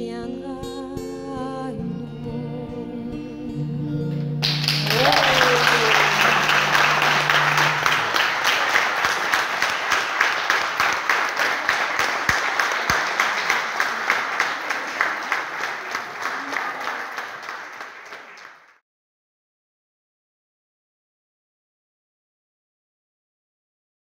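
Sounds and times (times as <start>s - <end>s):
crowd applauding: 4.4s - 18.8s.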